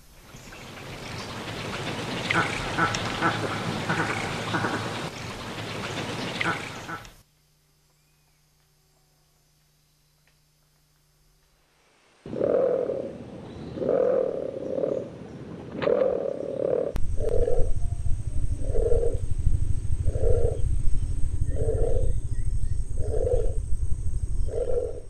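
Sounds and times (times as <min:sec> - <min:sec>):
heron calling: 0:00.3 - 0:07.2
low background rumble: 0:16.9 - 0:25.0.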